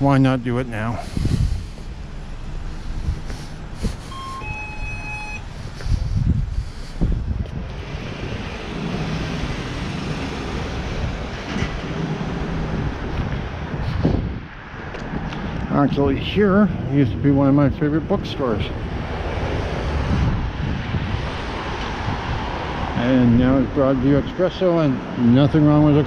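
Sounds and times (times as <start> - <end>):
vehicles passing: 0.0 - 26.0
brief high tone: 4.1 - 5.4.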